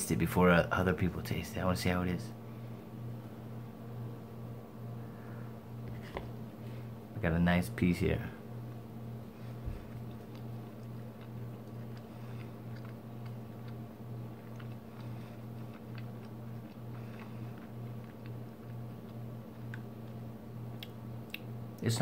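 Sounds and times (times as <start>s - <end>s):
low hum: 0.0s - 22.0s
man chewing: 8.7s - 21.6s.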